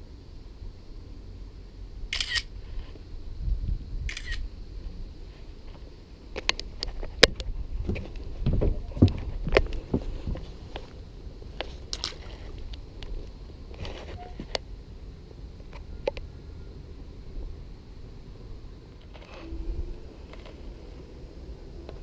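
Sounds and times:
phone camera shutter sound: 2.1 - 2.5, 4.1 - 4.4, 19.0 - 19.6.

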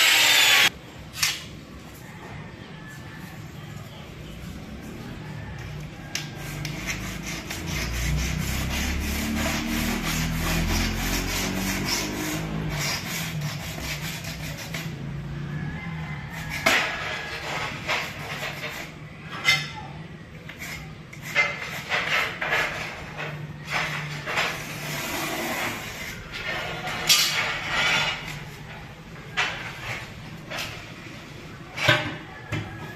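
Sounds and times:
knife blade scraping tile: 6.1 - 15.0, 16.4 - 31.0.

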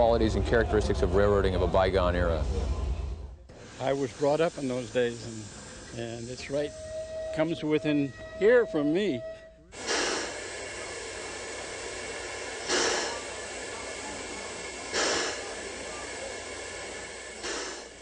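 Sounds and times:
steam locomotive hissing: 0.0 - 18.0
steam puffs: 1.6 - 7.2, 9.7 - 18.0.

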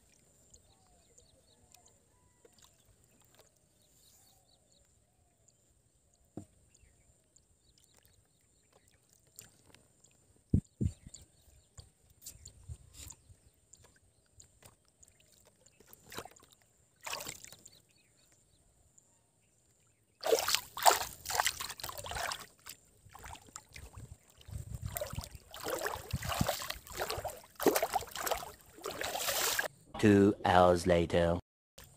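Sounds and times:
river water splashing: 14.6 - 17.8, 20.2 - 29.7.

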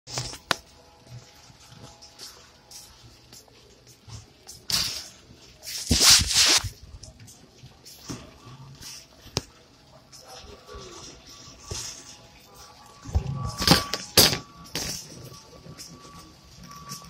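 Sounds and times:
phone rubbing against fabric: 5.6 - 6.8.

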